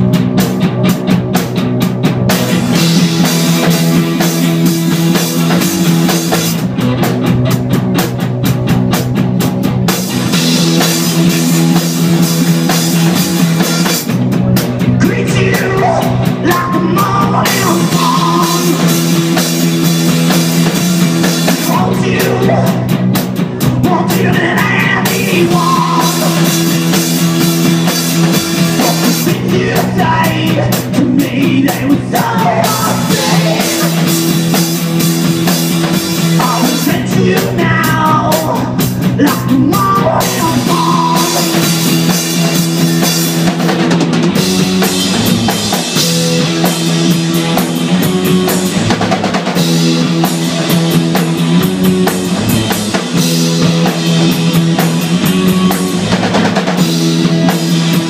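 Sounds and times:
drum kit: 0:00.0 - 0:58.0
electric guitars: 0:00.0 - 0:58.0
lead vocals: 0:10.1 - 0:43.6.

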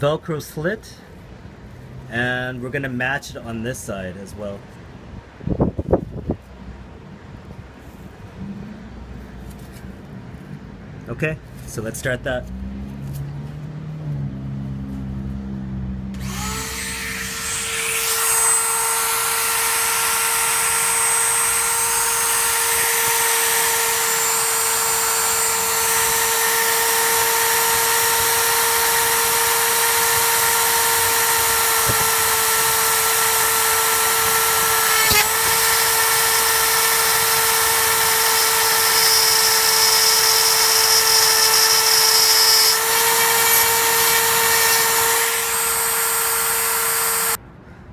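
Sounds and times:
rotary tool high whine: 0:16.1 - 0:47.4
hiss of cutting plastic: 0:31.6 - 0:47.4.

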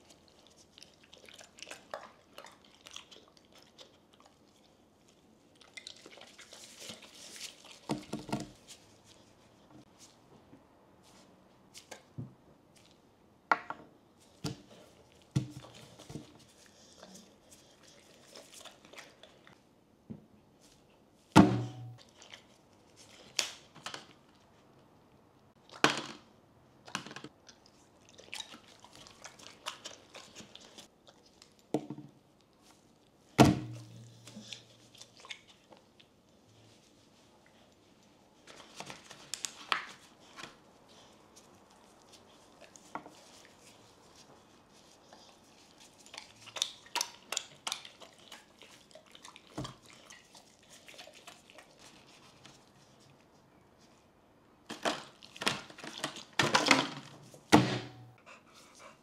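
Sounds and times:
dog chewing wetly: 0:00.0 - 0:09.4, 0:14.3 - 0:19.6, 0:22.0 - 0:24.2, 0:27.3 - 0:53.4.

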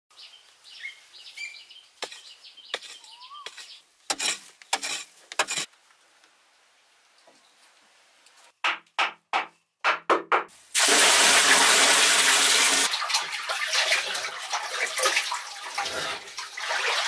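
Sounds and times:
water pouring into pool: 0:10.7 - 0:17.0
water splashing and sloshing: 0:10.8 - 0:17.0.

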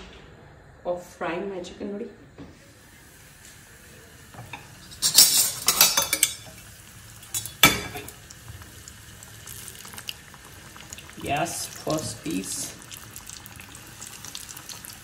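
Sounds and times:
chicken sizzling in hot oil: 0:02.6 - 0:15.0
metal utensils clinking: 0:04.4 - 0:06.6, 0:07.2 - 0:08.2.

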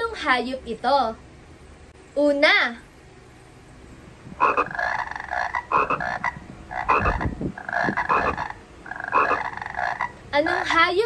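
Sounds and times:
frog croaking: 0:04.3 - 0:10.8.

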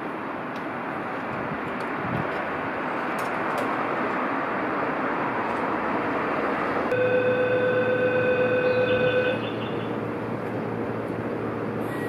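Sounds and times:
train running noise: 0:00.0 - 0:12.0
train horn tone: 0:06.9 - 0:09.6.

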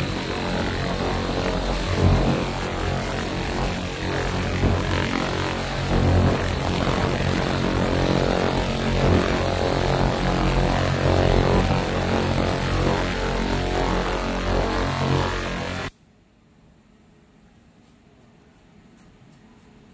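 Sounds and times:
laser machine droning hum with hiss: 0:00.0 - 0:15.9.

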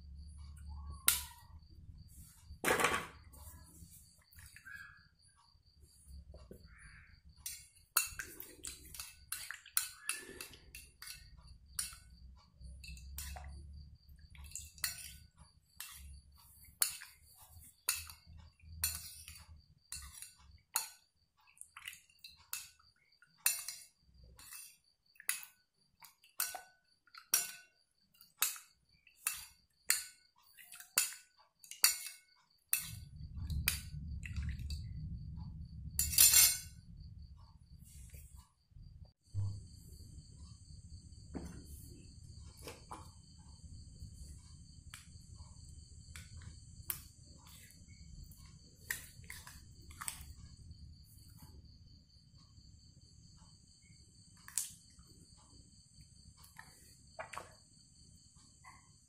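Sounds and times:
metal spoon clinking on glass: 0:07.4 - 0:12.1, 0:17.8 - 0:21.0, 0:23.4 - 0:25.6, 0:26.2 - 0:33.8, 0:36.0 - 0:36.8.

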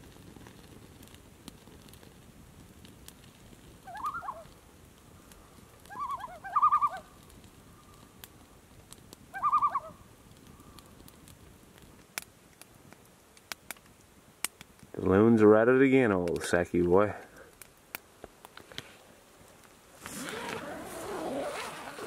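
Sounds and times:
loons giving tremolo calls: 0:03.9 - 0:04.4, 0:05.9 - 0:07.0.

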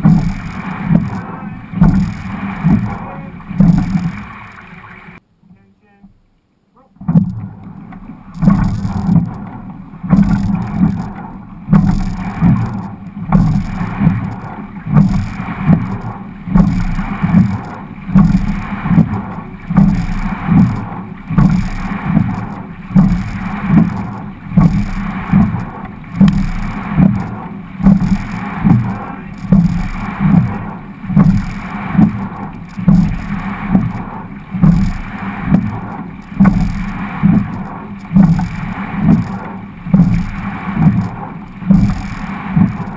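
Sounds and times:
rowing stroke surge and thump: 0:00.0 - 0:05.2, 0:06.8 - 0:42.9
wind on microphone: 0:00.0 - 0:05.2, 0:08.4 - 0:42.9
water rushing along hull: 0:00.0 - 0:42.9.

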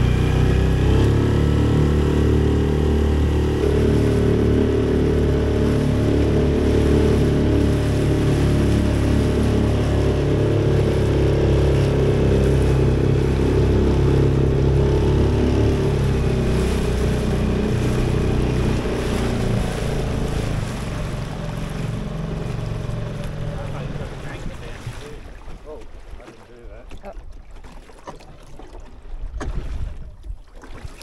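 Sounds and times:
hull splashing through water: 0:00.0 - 0:31.0
outboard motor running: 0:00.0 - 0:31.0.

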